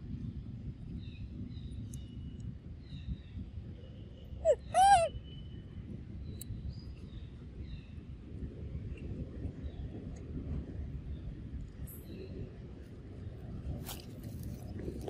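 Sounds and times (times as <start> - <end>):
steady low rumble: 0.0 - 15.0
animal hooting call: 4.4 - 5.1.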